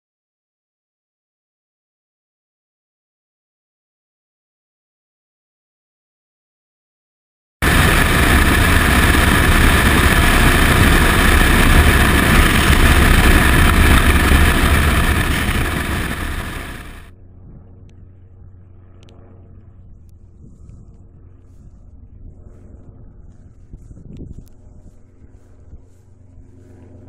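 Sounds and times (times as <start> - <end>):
wind buffeting microphone: 7.6 - 18.2, 19.8 - 26.5.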